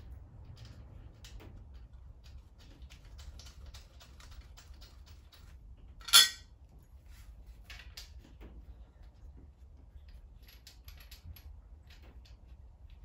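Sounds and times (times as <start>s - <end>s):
sharp metal clink: 6.0s - 6.4s.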